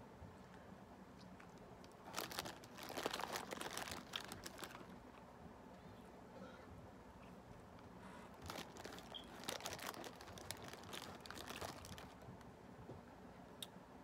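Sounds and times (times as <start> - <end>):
plastic bag crinkling: 1.9 - 5.0, 8.3 - 12.3.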